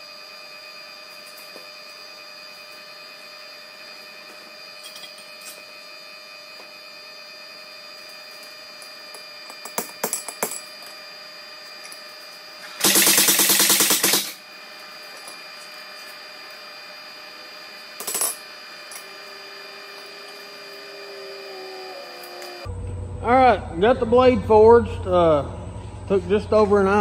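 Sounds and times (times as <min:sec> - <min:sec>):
steady machine hum: 0:00.0 - 0:27.0
power hammer rapid blows: 0:12.7 - 0:14.4.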